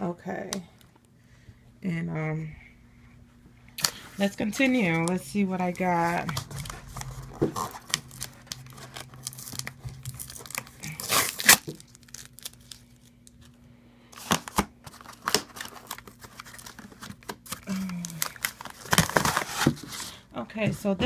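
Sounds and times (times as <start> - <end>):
cardboard scraping and crinkling: 18.5 - 20.2.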